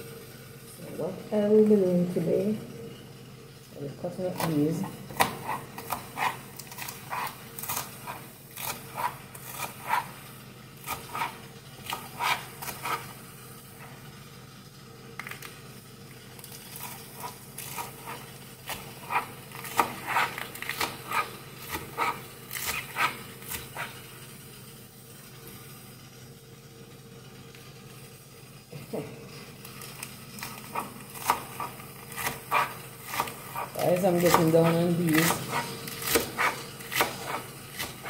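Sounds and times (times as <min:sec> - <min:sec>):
knife chopping on plastic board: 0:04.4 - 0:10.2, 0:10.8 - 0:13.1, 0:17.2 - 0:24.0, 0:30.4 - 0:38.0.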